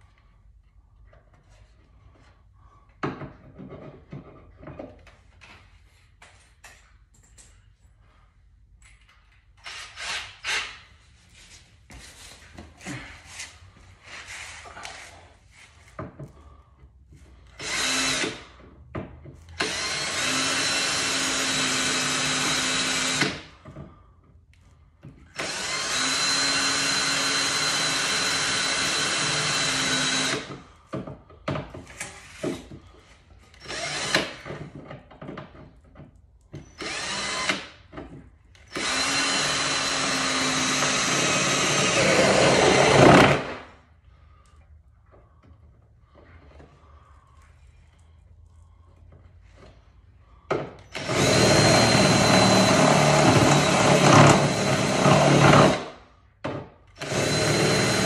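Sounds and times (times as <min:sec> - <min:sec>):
cordless drill running: 0:17.6 - 0:18.5, 0:19.6 - 0:23.5, 0:25.3 - 0:30.6, 0:33.6 - 0:34.5, 0:36.7 - 0:37.8, 0:38.6 - 0:43.7, 0:50.8 - 0:56.0, 0:56.9 - 0:58.0.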